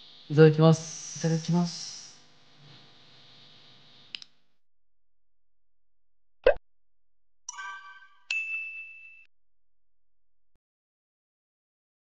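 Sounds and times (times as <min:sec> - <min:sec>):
bright chiming jingle: 0:07.5 - 0:09.2.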